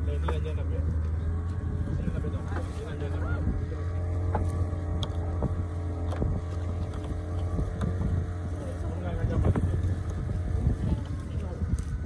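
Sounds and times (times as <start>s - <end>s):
boat motor droning: 0.0s - 12.0s
net and floats clicking and knocking: 4.0s - 12.0s.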